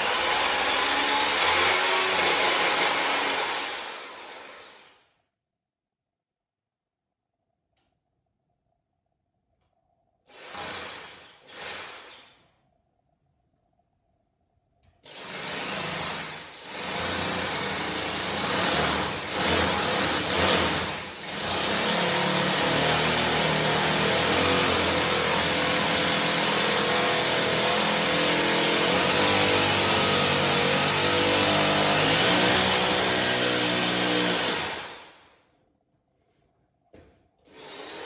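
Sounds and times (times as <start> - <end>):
power drill whining into ceiling: 0.0 - 5.2, 10.2 - 12.6, 14.9 - 35.4, 37.4 - 38.0.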